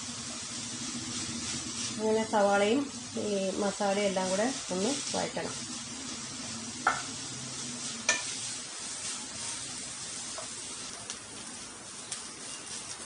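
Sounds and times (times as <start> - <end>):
onions sizzling in oil: 0.0 - 13.0
spatula knocking against pan: 6.8 - 7.1.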